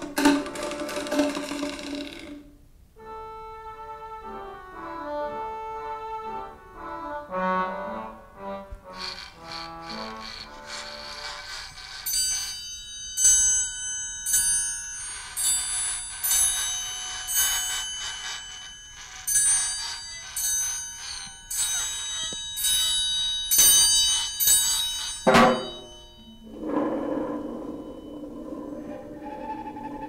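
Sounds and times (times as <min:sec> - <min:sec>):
bell-like struck notes: 0:11.9 - 0:29.2.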